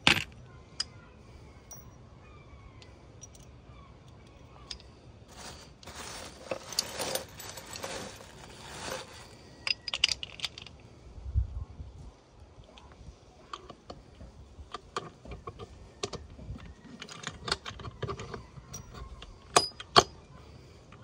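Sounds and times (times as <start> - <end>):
metal gears clinking: 4.7 - 10.6
plastic bin bag rustling: 5.3 - 9.4.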